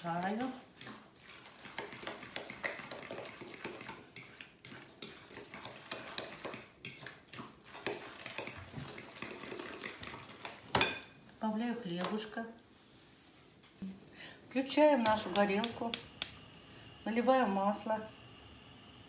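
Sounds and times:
fork scraping a glass bowl: 0.2s - 10.2s.

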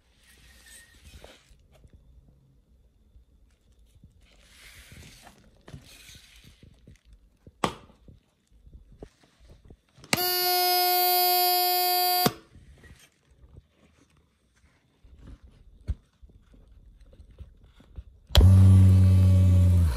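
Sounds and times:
electronic buzzer tone: 10.2s - 12.4s.

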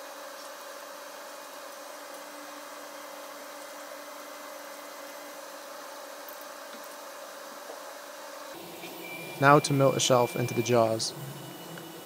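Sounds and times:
machine hum: 0.0s - 12.0s
faint whining tones: 8.4s - 12.0s.

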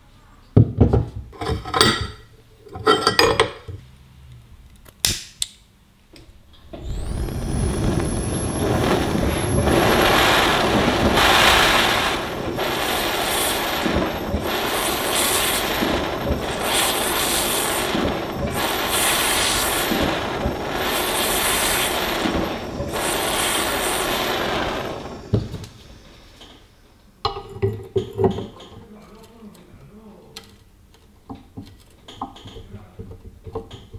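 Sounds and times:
gas torch hissing: 6.3s - 26.9s
lighter igniting torch: 6.5s - 26.3s.

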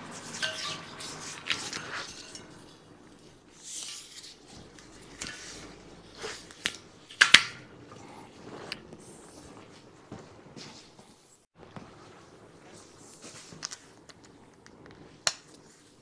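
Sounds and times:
tools clicking and scraping: 0.1s - 5.7s.

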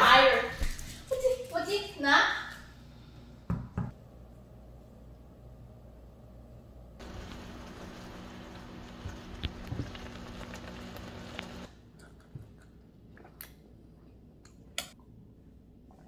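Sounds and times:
low hum: 4.0s - 11.7s
food sizzling in a pan: 7.0s - 11.7s.

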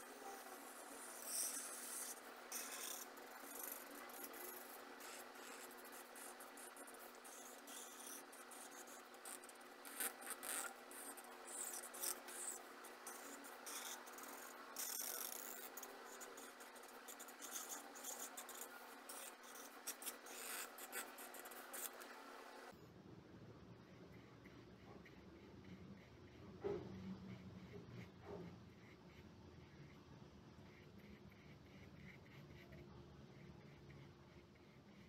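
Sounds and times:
marker strokes on paper: 0.2s - 22.2s.

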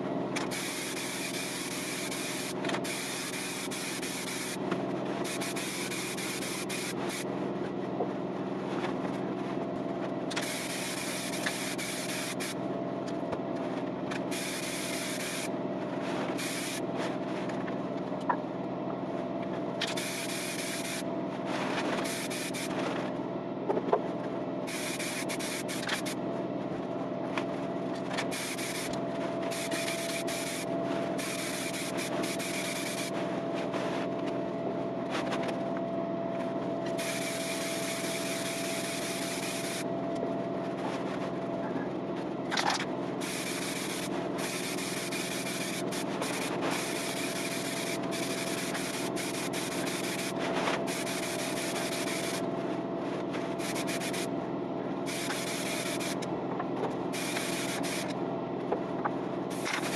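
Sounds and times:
steady hum: 0.0s - 59.9s
hand sanding scratchy rubbing: 43.2s - 52.4s, 57.2s - 58.1s.

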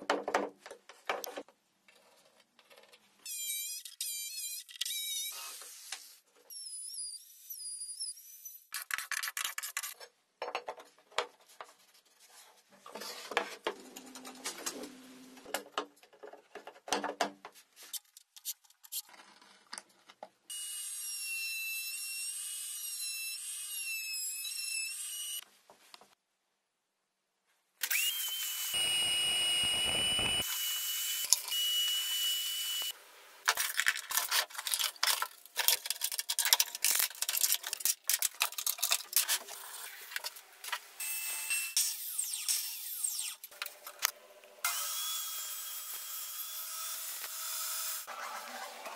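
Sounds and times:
clicks and scrapes of wood and tools: 8.8s - 20.4s, 33.4s - 40.9s
router motor running: 27.8s - 32.9s
motor with high whine: 28.0s - 31.0s
plastic parts clattering: 33.4s - 40.4s.

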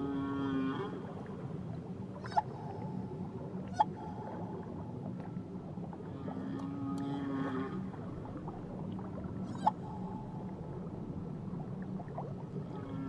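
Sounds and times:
whale calls: 0.0s - 4.5s, 6.0s - 8.1s, 9.4s - 10.3s, 12.6s - 13.0s.

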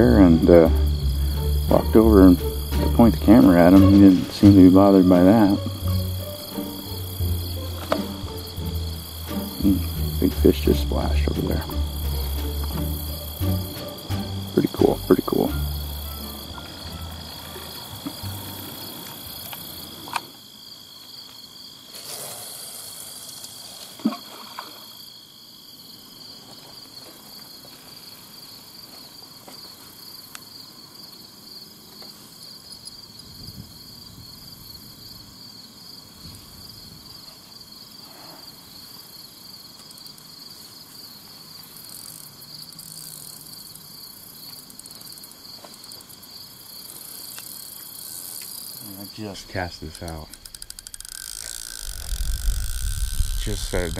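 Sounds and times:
pulsing trill: 0.0s - 18.7s, 50.3s - 53.9s
insects chirring: 0.0s - 53.9s.

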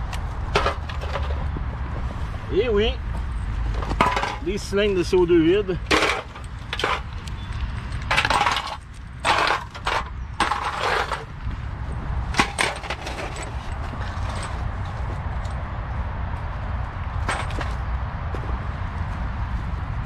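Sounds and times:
steady low rumble: 0.0s - 20.0s
metal cans clattering in plastic tub: 3.8s - 4.5s, 5.8s - 7.1s, 8.1s - 11.3s, 12.4s - 13.5s.

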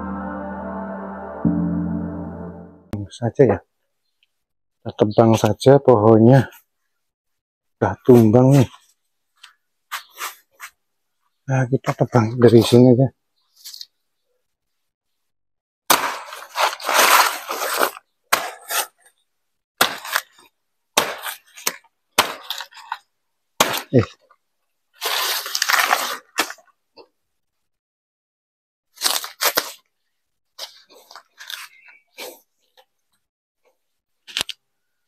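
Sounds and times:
knife chopping plant: 15.9s - 18.9s, 19.8s - 20.4s, 21.0s - 22.7s, 23.6s - 24.0s
leaves rustling and tearing: 16.0s - 19.1s, 25.0s - 26.6s, 29.0s - 29.9s.

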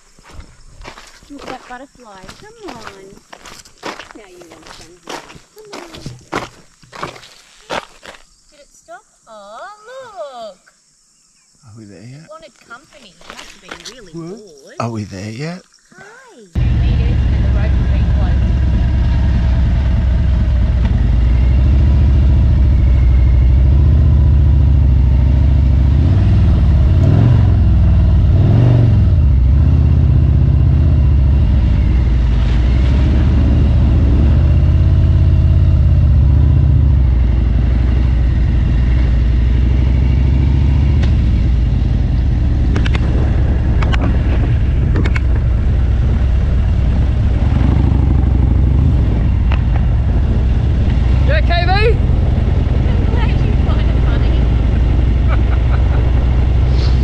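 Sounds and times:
motorcycle engine running: 16.6s - 57.0s.

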